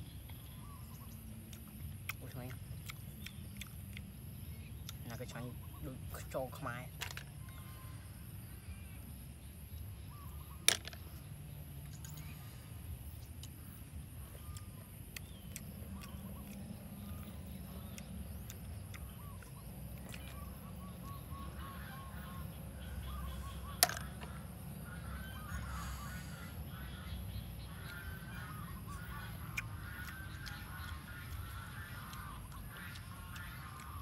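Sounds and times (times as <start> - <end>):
steady low rumble: 6.8 - 34.0
birds honking: 20.4 - 34.0.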